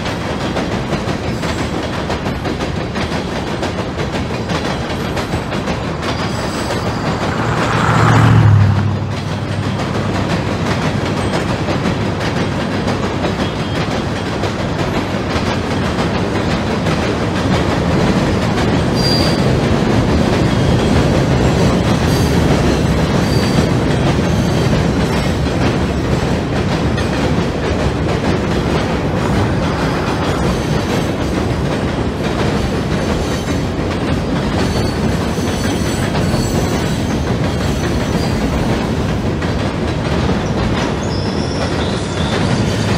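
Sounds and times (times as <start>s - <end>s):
model train wheels clattering: 0.0s - 8.0s, 9.1s - 42.9s
faint wheel squeaks: 40.4s - 42.9s.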